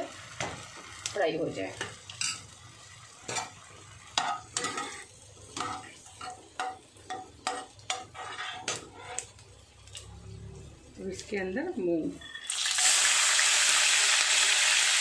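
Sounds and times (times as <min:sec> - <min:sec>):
faint frying sizzle: 0:00.0 - 0:15.0
spoon scraping metal pan: 0:04.2 - 0:10.1.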